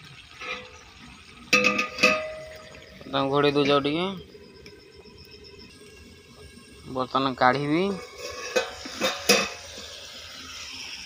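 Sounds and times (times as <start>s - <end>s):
steel lid clanging onto pan: 1.5s - 2.8s, 8.0s - 9.8s.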